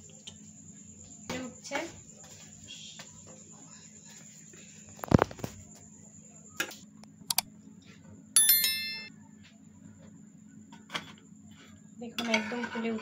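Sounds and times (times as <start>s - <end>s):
bright bell chime: 8.4s - 9.1s.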